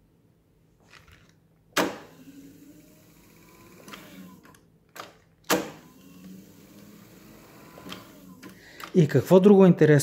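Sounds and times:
tape reel motors whirring: 1.8 - 4.6, 5.5 - 9.0.

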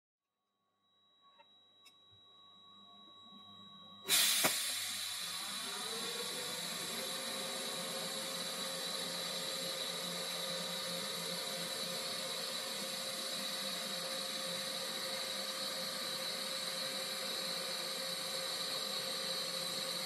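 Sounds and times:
steady high whine: 1.4 - 20.0
welding arc hissing: 4.1 - 10.4.

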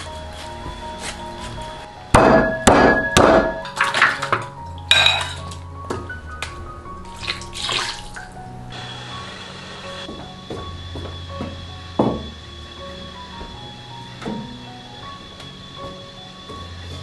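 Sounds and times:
soft background music: 0.0 - 17.0
cleaver chopping on wooden block: 2.2 - 3.6
meat splashing into water: 7.2 - 8.2
liquid pouring: 7.2 - 8.4.

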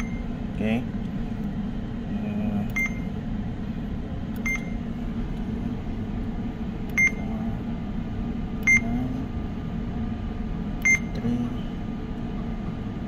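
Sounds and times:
short beeps: 0.0 - 0.3, 2.7 - 3.1, 4.4 - 4.8, 6.9 - 7.3, 8.6 - 8.9, 10.8 - 11.2
steady low hum: 0.0 - 13.0.

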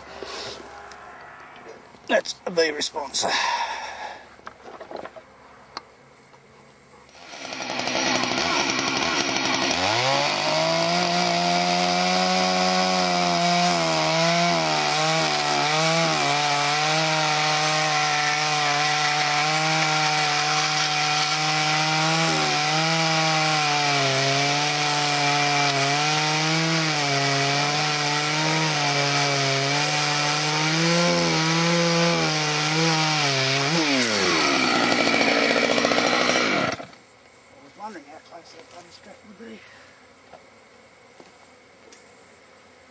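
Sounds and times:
chainsaw cutting wood: 7.1 - 37.0.

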